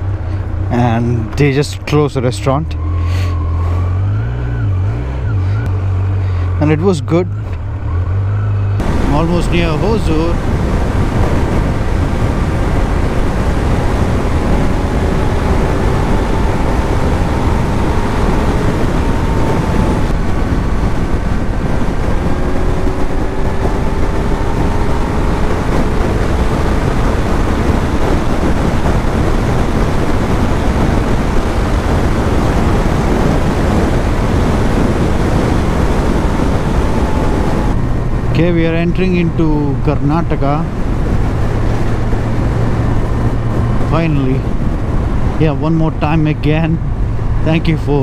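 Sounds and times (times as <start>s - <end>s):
motorcycle engine humming: 0.0s - 48.0s
wind rushing over microphone: 0.0s - 48.0s.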